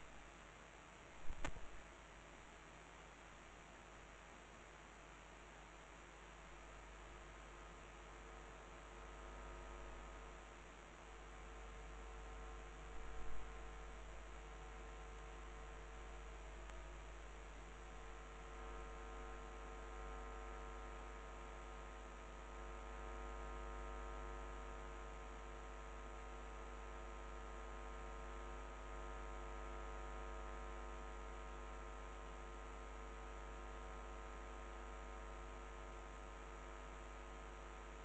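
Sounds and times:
electrical hum: 1.1 - 1.9.

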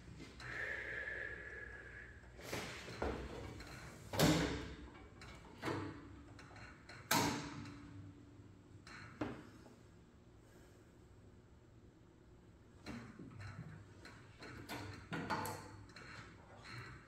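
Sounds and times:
parts clunking and knocking: 12.8 - 17.0.

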